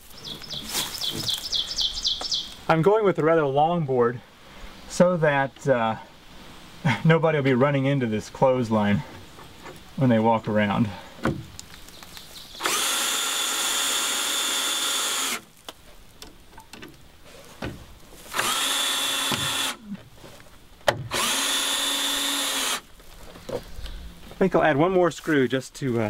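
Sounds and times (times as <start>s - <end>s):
cordless drill whine: 12.6s - 15.5s, 18.3s - 19.8s, 21.1s - 22.8s.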